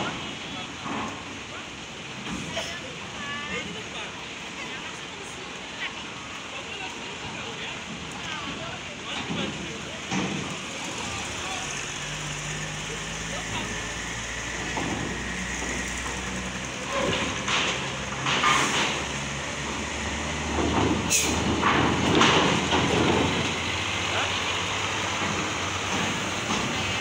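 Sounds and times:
wheels clanking on steel plates: 7.9 - 27.0
diesel engine running: 9.1 - 27.0.

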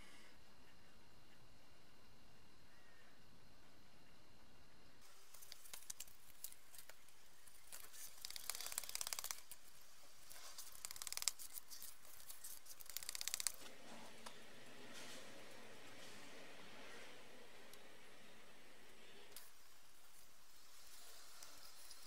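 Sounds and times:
filler spreader scraping on paper: 7.6 - 17.2.

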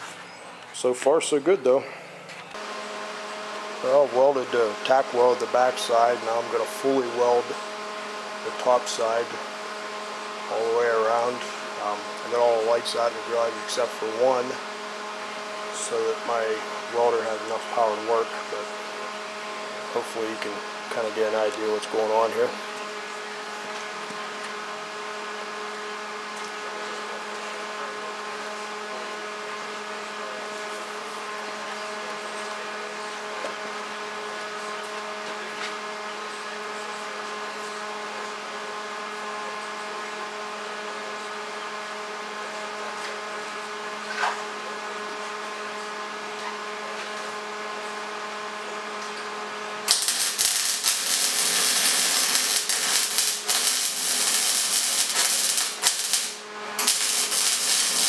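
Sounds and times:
electric hum: 0.4 - 31.7, 47.3 - 58.0
welding arc crackling: 2.6 - 14.6, 49.8 - 58.0.

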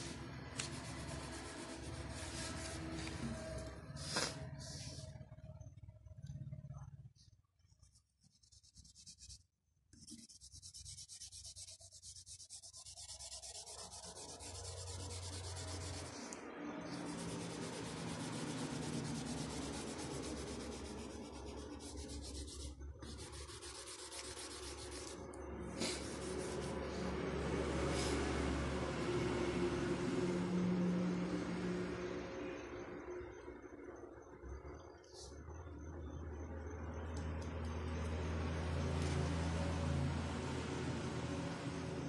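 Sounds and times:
oil pastel rubbing on paper: 0.0 - 3.3, 7.9 - 25.2, 25.8 - 27.1.

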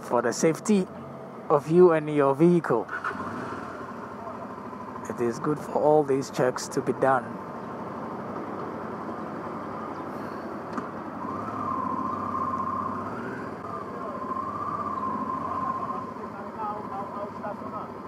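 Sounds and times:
motorcycle engine and road noise: 0.0 - 18.0
steady high tone: 11.2 - 17.8.

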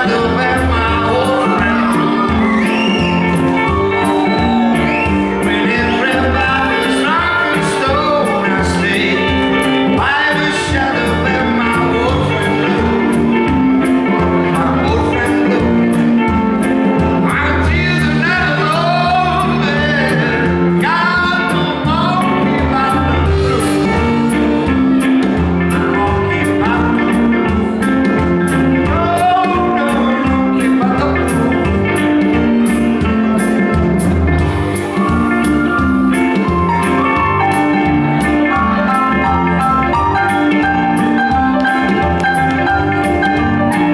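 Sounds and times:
male lead vocal: 0.0 - 33.8
live blues band playing: 0.0 - 43.9.

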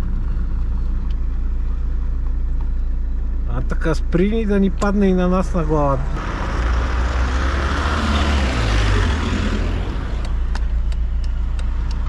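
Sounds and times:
car engine idling: 0.0 - 12.0
rushing noise: 5.9 - 10.9.

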